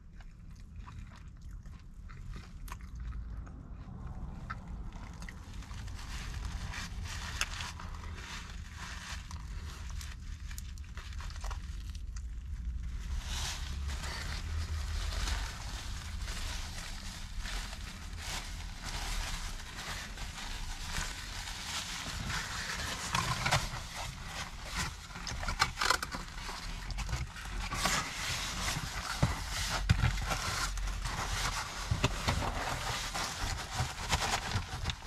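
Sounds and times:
chewing: 0.0 - 5.9
paper napkin crinkling: 13.0 - 35.0
cardboard box being handled: 18.7 - 35.0.

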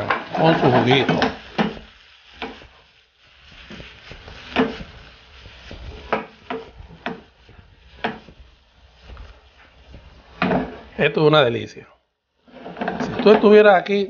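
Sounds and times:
frying pan knocking on stove grate: 0.0 - 2.8, 3.6 - 8.6
food tumbling in butter: 0.0 - 11.1.

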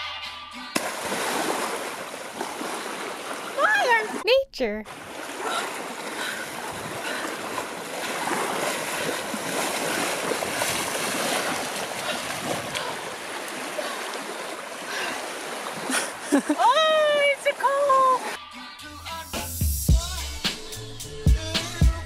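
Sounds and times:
water rushing: 0.8 - 18.4.

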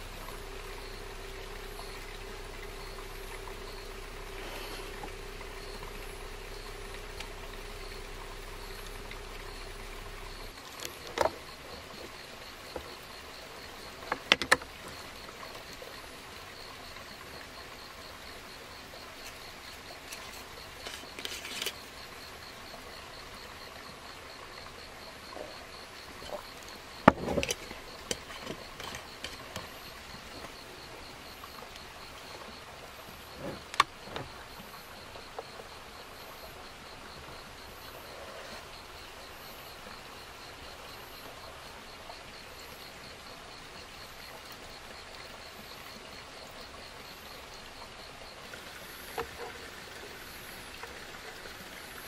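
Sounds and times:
low hum: 0.0 - 12.0
insects chirping: 0.0 - 52.0.

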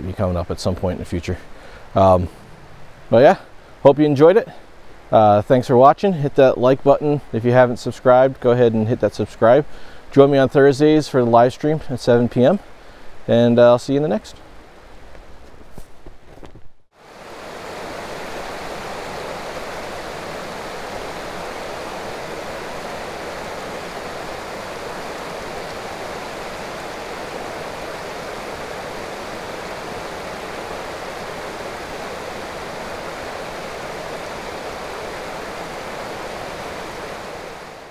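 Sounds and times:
water rushing over small waterfall: 17.0 - 37.9.

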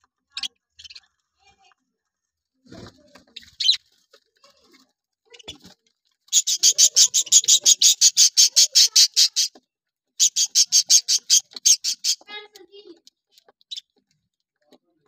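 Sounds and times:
budgerigars chirping: 6.3 - 9.6, 10.2 - 12.2.

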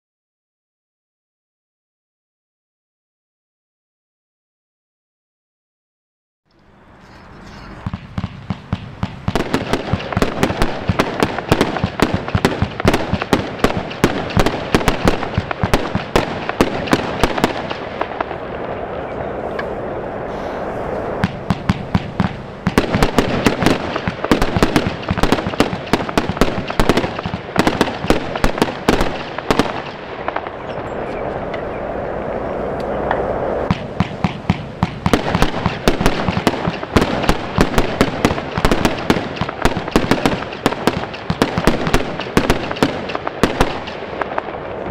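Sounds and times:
steady fireworks hiss: 6.6 - 44.9
fireworks star bursts: 6.9 - 18.7, 20.2 - 30.6, 33.6 - 44.6
fireworks launch thumps: 7.8 - 17.8, 21.2 - 28.2.

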